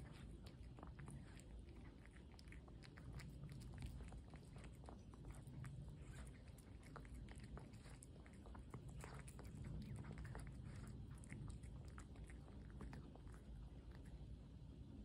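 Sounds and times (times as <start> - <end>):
cat chewing food: 0.0 - 15.0.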